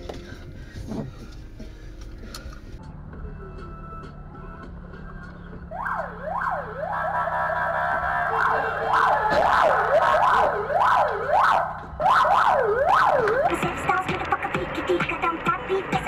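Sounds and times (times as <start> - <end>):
police siren: 5.7 - 15.9.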